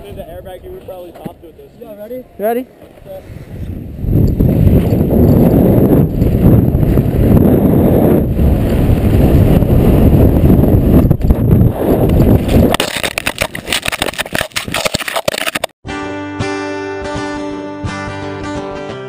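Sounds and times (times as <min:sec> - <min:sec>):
wind rushing on microphone: 0:00.0 - 0:01.8, 0:02.9 - 0:15.1
camera tumbling into snow: 0:11.0 - 0:15.7.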